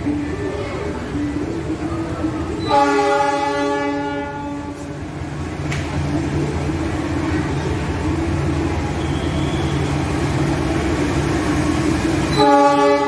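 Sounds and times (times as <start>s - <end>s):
diesel locomotive horn: 2.6s - 5.0s, 12.2s - 13.0s.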